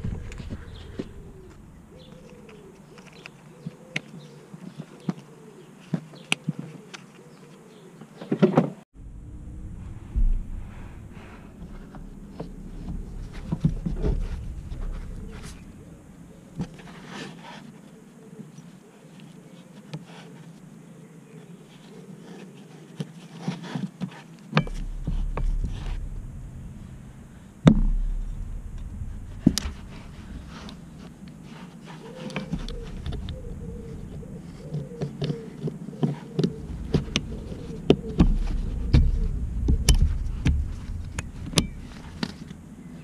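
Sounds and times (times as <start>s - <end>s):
low rumbling handling bumps: 0.0s - 2.6s, 8.9s - 17.2s, 24.6s - 35.5s, 36.5s - 43.0s.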